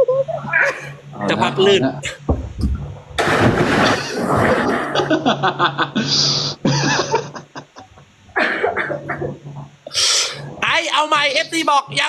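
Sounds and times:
loud splash into pool: 0:03.2 - 0:05.0
people laughing: 0:03.8 - 0:09.4.

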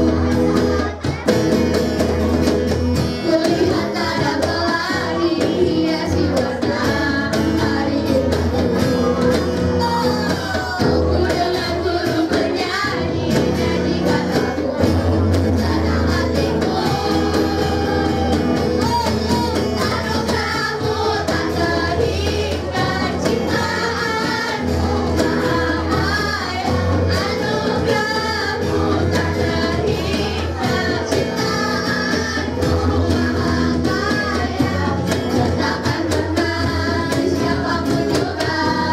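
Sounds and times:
cajon beat: 0:00.0 - 0:38.9
guitar: 0:00.0 - 0:38.9
girls' choir singing: 0:03.0 - 0:38.9.

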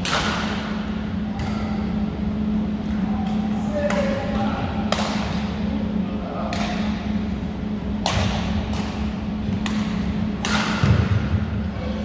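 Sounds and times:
rackets striking a shuttlecock: 0:00.0 - 0:01.8, 0:07.9 - 0:11.4
steady low hum: 0:00.0 - 0:12.0.

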